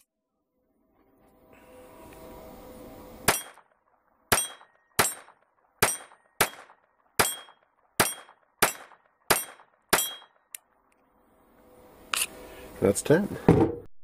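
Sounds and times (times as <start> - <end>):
pistol shots: 3.3 - 3.7, 4.3 - 10.4.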